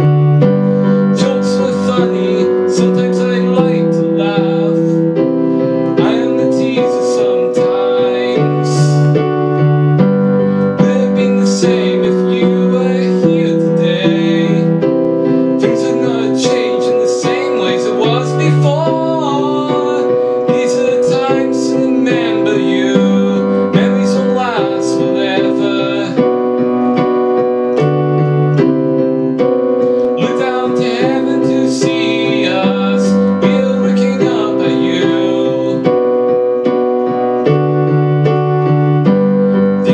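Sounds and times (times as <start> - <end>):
electronic keyboard piano chords: 0.0 - 39.9
man singing: 0.8 - 9.5, 10.6 - 27.9, 29.8 - 36.6.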